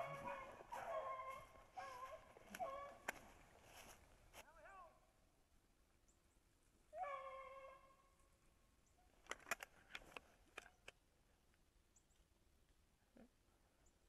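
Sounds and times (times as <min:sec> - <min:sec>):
dog howling: 0:00.0 - 0:03.1, 0:07.0 - 0:08.0
sharp clicks and snaps: 0:09.2 - 0:12.3.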